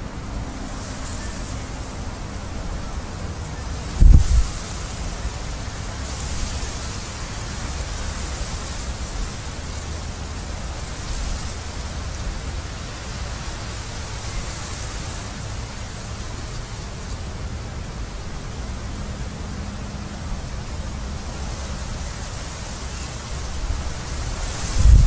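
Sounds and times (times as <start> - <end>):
wind rushing through barley: 0.0 - 25.0
wind buffeting microphone: 2.2 - 14.6, 19.4 - 25.0.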